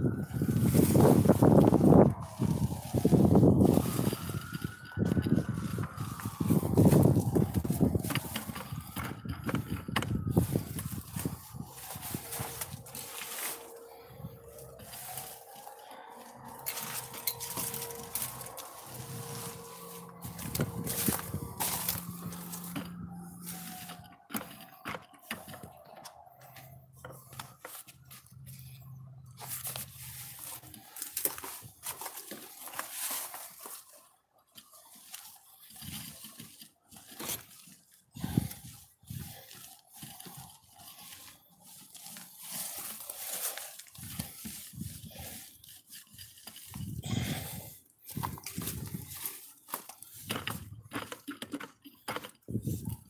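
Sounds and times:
knocks and scrapes: 0.1 - 34.0.

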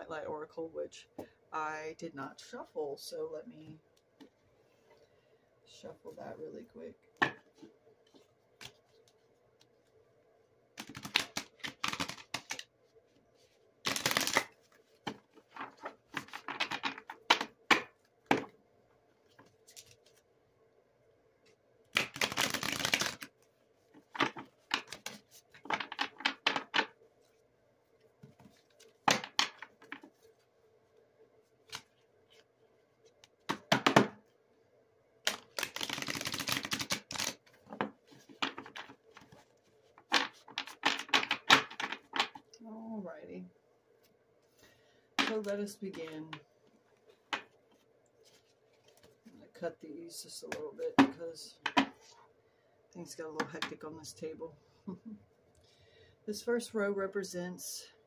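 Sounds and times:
cards being shuffled: 10.8 - 12.7, 13.4 - 18.0, 19.4 - 20.2, 22.0 - 27.0, 31.6 - 33.7, 35.3 - 42.4.

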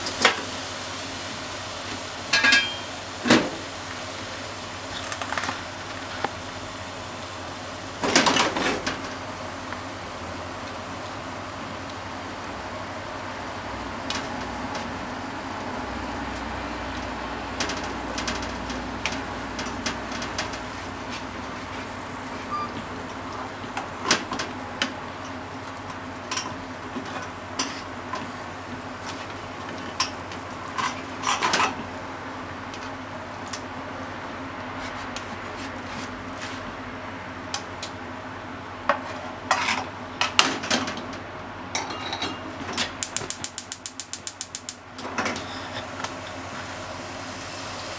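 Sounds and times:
sausages and eggs sizzling: 0.0 - 34.5, 42.4 - 47.9
utensil scraping frying pan: 27.0 - 27.9, 38.9 - 39.9, 45.2 - 46.0.

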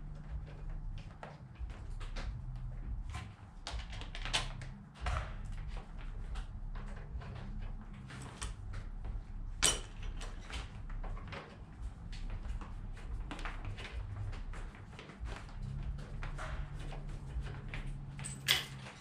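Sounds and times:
low hum: 0.0 - 19.0
metal tools clinking: 18.2 - 19.0.

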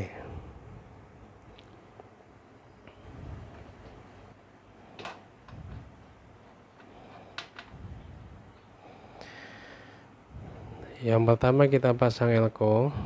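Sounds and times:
soft low bumps: 5.4 - 6.3.

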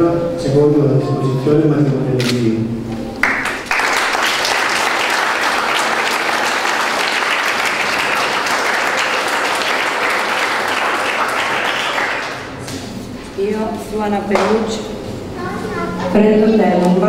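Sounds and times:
guests applauding: 3.2 - 12.8.

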